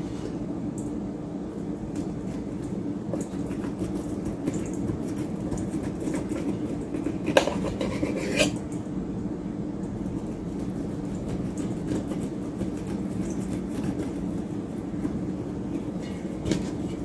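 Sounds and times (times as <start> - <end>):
steady low hum: 0.0 - 17.0
knife scraping corn cob: 5.0 - 8.6.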